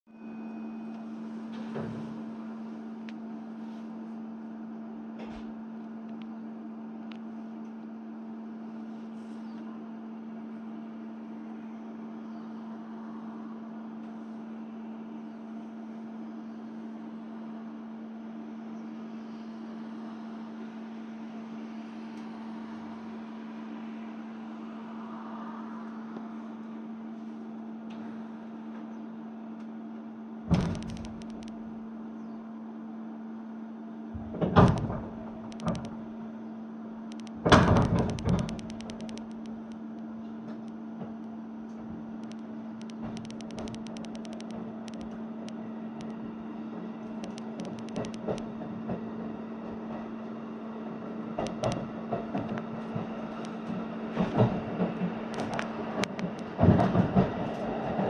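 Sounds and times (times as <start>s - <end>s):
electric train equipment hum: 0.2s - 58.0s
faint clicks: 42.2s - 46.2s, 47.2s - 48.5s.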